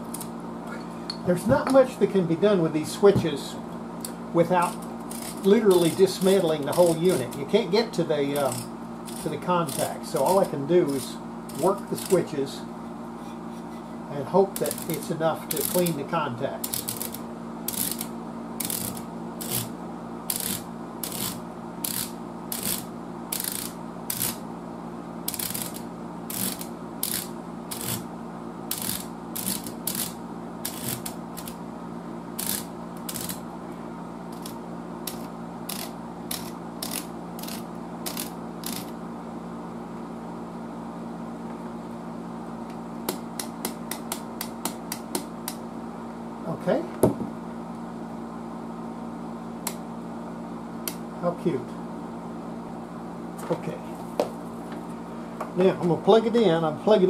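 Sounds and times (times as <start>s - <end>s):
steady low hum: 0.0s - 57.0s
rotary switches clicking: 25.3s - 28.0s, 28.7s - 31.6s, 34.3s - 38.9s.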